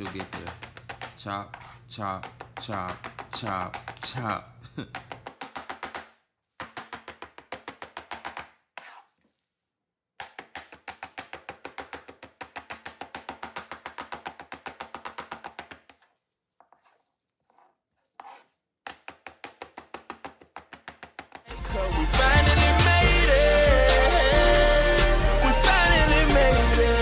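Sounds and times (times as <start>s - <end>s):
knife chopping on plastic board: 0.0s - 9.0s, 10.2s - 16.0s, 18.2s - 21.5s.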